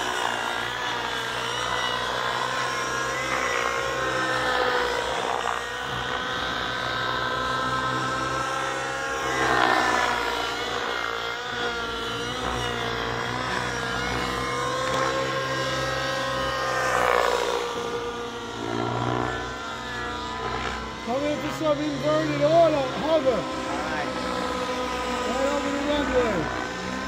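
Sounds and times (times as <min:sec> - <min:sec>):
model helicopters whining: 0:00.0 - 0:27.0.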